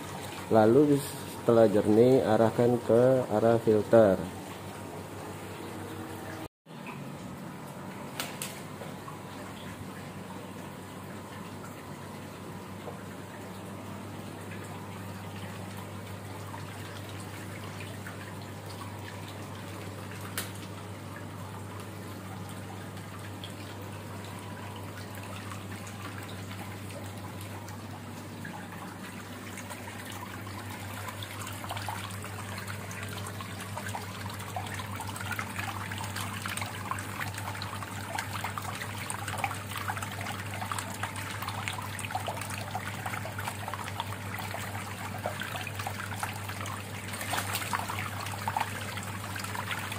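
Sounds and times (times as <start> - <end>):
water splashing onto tiled floor: 44.6 - 49.9.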